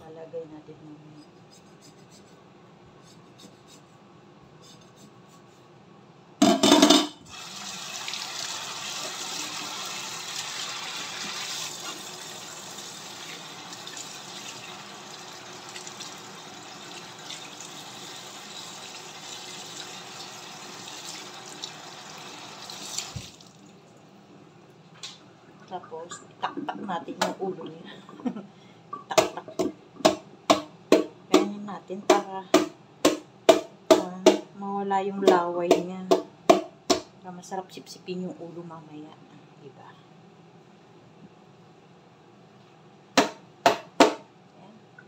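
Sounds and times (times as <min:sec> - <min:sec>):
fish rinsed by hand: 0:07.3 - 0:23.8
tap water splashing into sink: 0:22.7 - 0:23.6.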